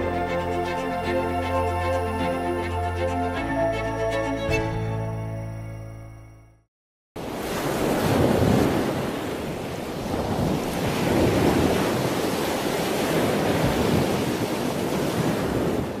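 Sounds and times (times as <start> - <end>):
ocean waves washing: 7.2 - 16.0.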